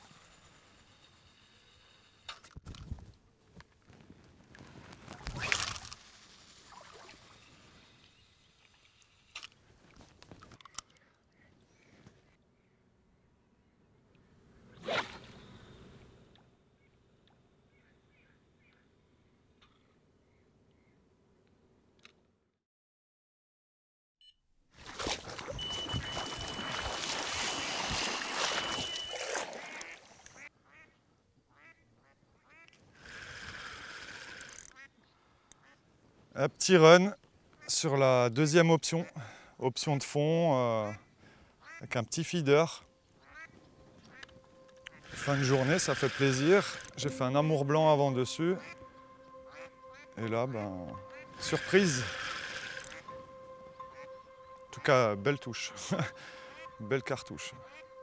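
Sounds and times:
fishing line hissing off reel: 0:14.7 - 0:16.1, 0:25.4 - 0:30.4, 0:33.0 - 0:34.8, 0:44.8 - 0:47.1, 0:51.1 - 0:53.2
legs splashing through water: 0:24.8 - 0:30.4
high electronic bite alarm tone: 0:25.5 - 0:29.9
sharp reel clicks: 0:33.0 - 0:34.8, 0:44.8 - 0:47.0, 0:51.4 - 0:53.0
short descending calls: 0:43.3 - 0:54.9.

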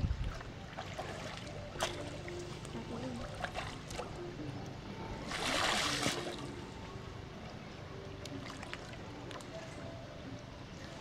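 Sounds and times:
light water noise: 0:00.0 - 0:11.0
water splashing: 0:00.2 - 0:04.2, 0:05.2 - 0:06.6.

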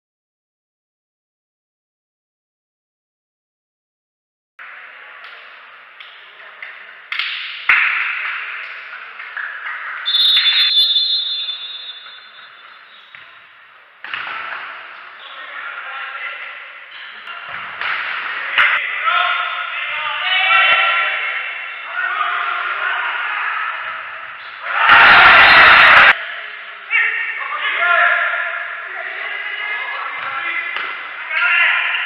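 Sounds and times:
ball bouncing in hall: 0:04.6 - 0:15.4, 0:16.9 - 0:19.6, 0:30.1 - 0:32.0
whistle blast: 0:10.0 - 0:13.0.

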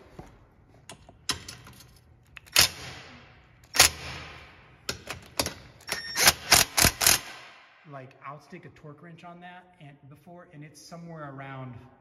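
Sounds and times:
impact driver hammering: 0:06.3 - 0:07.5.

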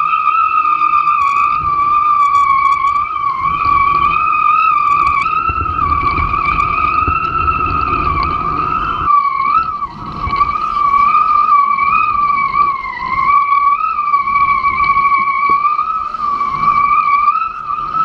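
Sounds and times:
high-pitched rig whistle: 0:00.0 - 0:18.0
water rushing: 0:00.0 - 0:18.0
wind rushing: 0:01.5 - 0:18.0.

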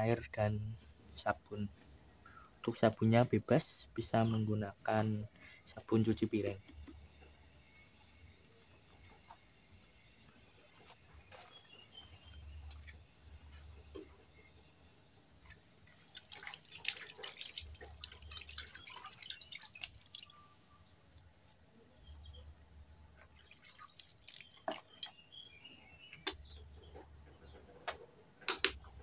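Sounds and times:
water splashing and dripping: 0:15.4 - 0:21.6, 0:23.1 - 0:25.2.

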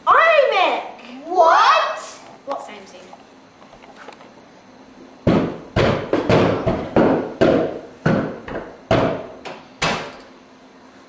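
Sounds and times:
loud knocks: 0:05.2 - 0:10.2.

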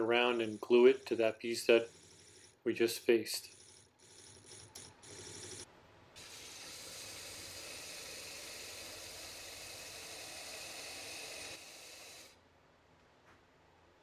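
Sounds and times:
wood lathe cutting hiss: 0:06.2 - 0:12.4.

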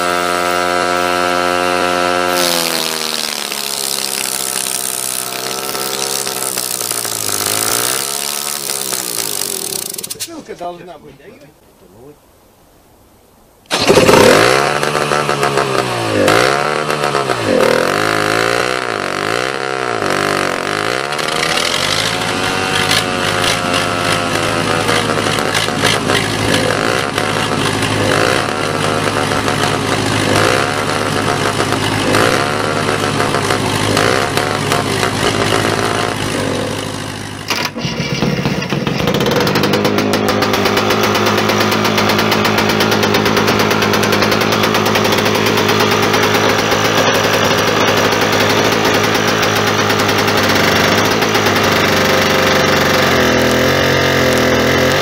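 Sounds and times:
small two-stroke engine running: 0:00.0 - 0:10.2, 0:13.7 - 0:55.0
engine running steadily: 0:13.7 - 0:55.0.

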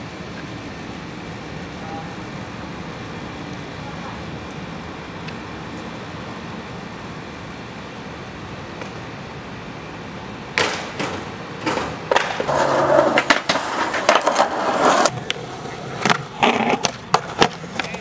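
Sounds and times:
skateboard rolling on concrete: 0:02.4 - 0:18.0
skateboard landing cracks: 0:10.5 - 0:18.0
skateboard pops and slaps: 0:10.6 - 0:15.4, 0:16.0 - 0:18.0.

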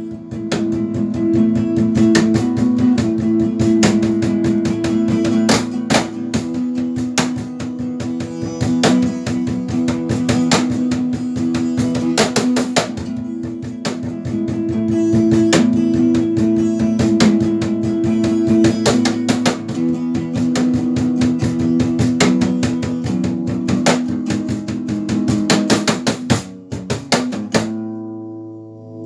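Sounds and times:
cajon struck in rhythm: 0:00.0 - 0:28.0
guitar music from speakers: 0:00.0 - 0:29.0.

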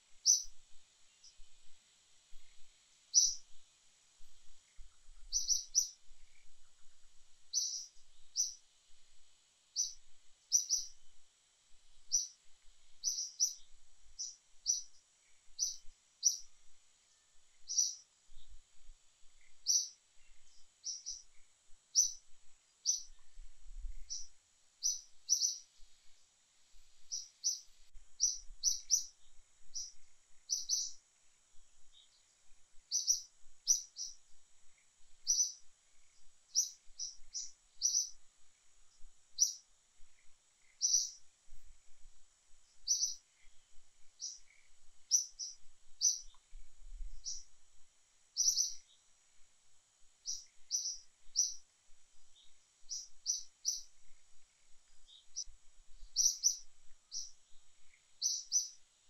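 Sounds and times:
bird chirping: 0:00.2 - 0:01.5, 0:02.3 - 0:03.6, 0:04.4 - 0:08.6, 0:09.7 - 0:11.1, 0:12.0 - 0:16.5, 0:17.1 - 0:18.6, 0:19.3 - 0:26.2, 0:26.8 - 0:31.0, 0:31.8 - 0:38.2, 0:38.9 - 0:41.3, 0:42.7 - 0:47.5, 0:48.4 - 0:49.1, 0:50.2 - 0:58.8.

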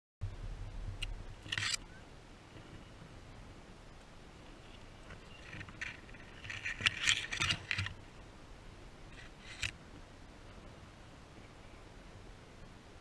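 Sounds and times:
rustling in dry leaves: 0:00.8 - 0:09.7.

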